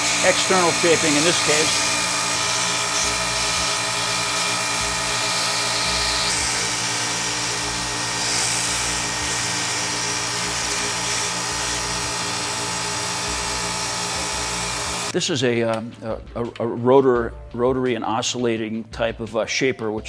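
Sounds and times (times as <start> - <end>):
gritty sanding hiss: 0.0 - 4.6
belt sander motor hum: 0.0 - 15.2.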